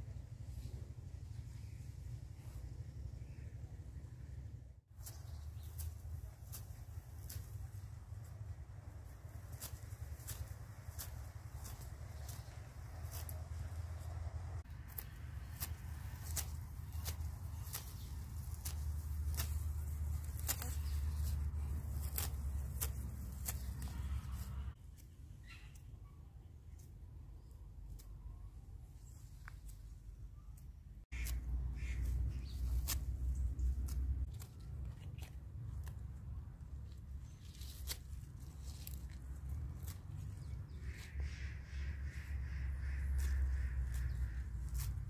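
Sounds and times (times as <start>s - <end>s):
low rumble: 0.0s - 24.8s
knife snipping herb stalks: 5.0s - 25.9s, 30.6s - 45.0s
bird calling: 25.4s - 26.2s, 30.4s - 33.8s, 39.9s - 45.0s.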